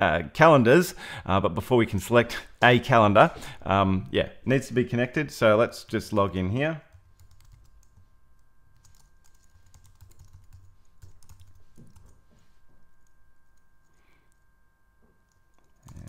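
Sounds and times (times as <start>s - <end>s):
faint steady tone: 4.4s - 16.0s.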